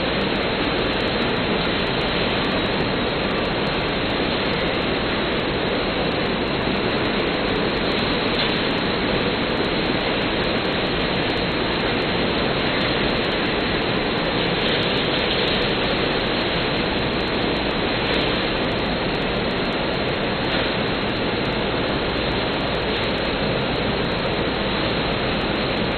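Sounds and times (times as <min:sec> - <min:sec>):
factory machinery roar: 0:00.0 - 0:25.9.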